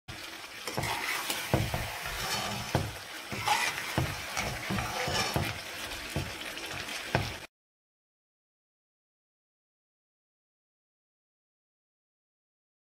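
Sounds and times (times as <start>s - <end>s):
food sizzling: 0.1s - 7.5s
spoon scraping frying pan: 0.6s - 7.5s.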